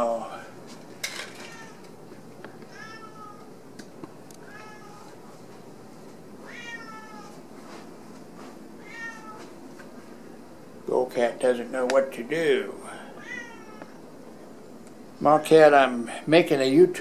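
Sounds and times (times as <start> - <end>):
cat meowing: 1.4 - 1.8, 2.7 - 3.5, 4.4 - 5.0, 6.4 - 7.3, 8.8 - 9.5, 13.2 - 14.0.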